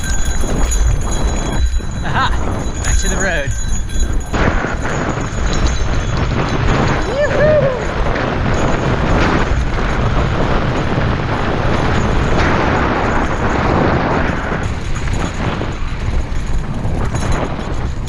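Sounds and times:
wind buffeting microphone: 0.0s - 18.0s
bike tyres crunching on gravel: 8.1s - 18.0s.

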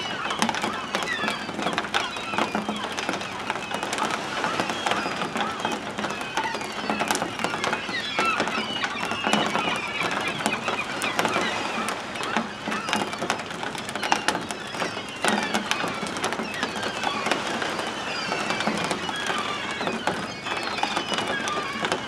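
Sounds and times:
gulls calling: 0.0s - 22.0s.

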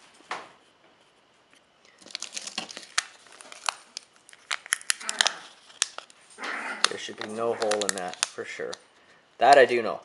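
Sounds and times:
sharp clicks and crinkles: 1.9s - 6.2s, 6.8s - 9.7s.

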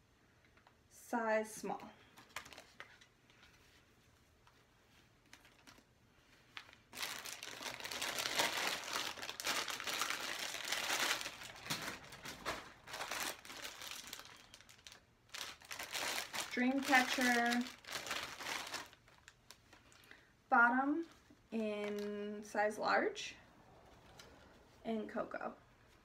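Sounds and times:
plastic bag crinkling: 2.2s - 3.1s, 5.2s - 20.2s, 21.7s - 22.2s.

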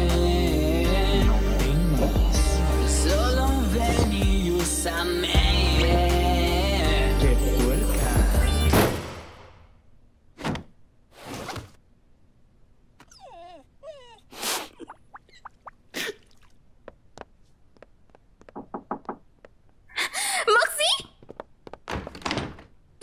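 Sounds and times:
cartoon thuds: 8.7s - 9.7s.

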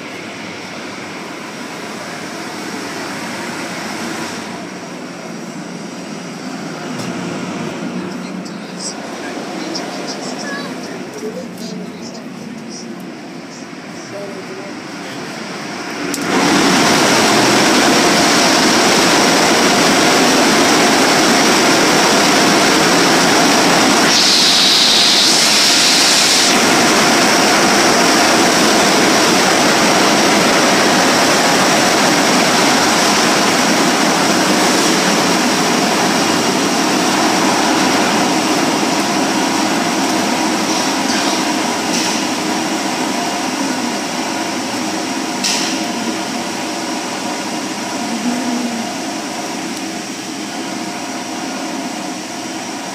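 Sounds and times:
air blowers rushing: 0.0s - 52.9s
sharp high hiss: 24.1s - 26.6s.

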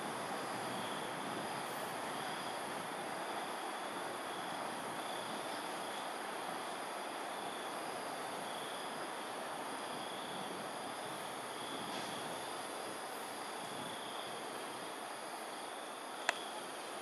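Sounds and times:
high insect trills: 0.0s - 17.0s.

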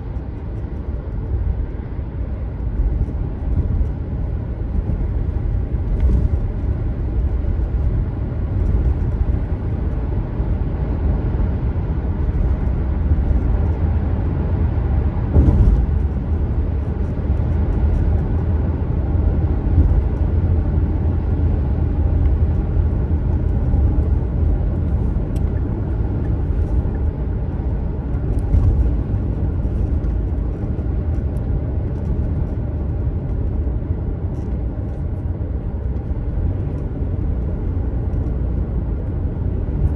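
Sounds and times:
car driving on road: 0.0s - 39.9s
brief thump: 15.3s - 15.8s.

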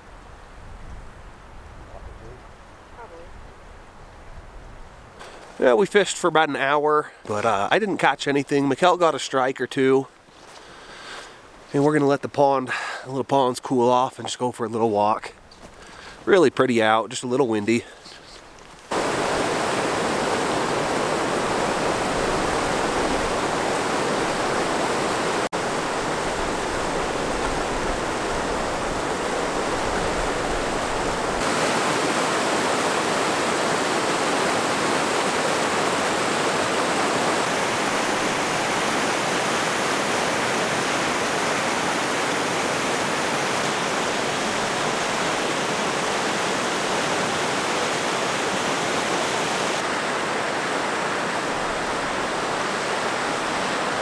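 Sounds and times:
creek rushing over rocks: 18.5s - 54.0s.

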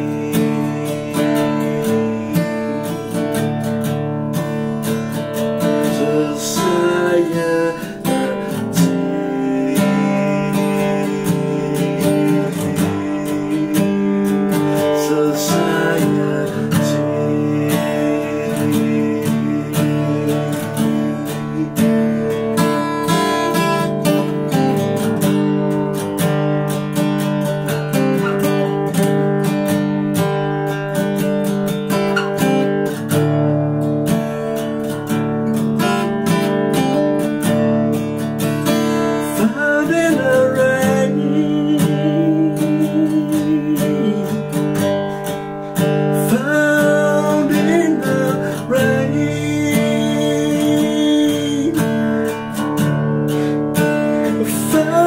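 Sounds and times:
person singing: 0.0s - 3.8s, 4.4s - 25.0s, 38.6s - 55.0s
acoustic guitar strumming: 0.0s - 55.0s.

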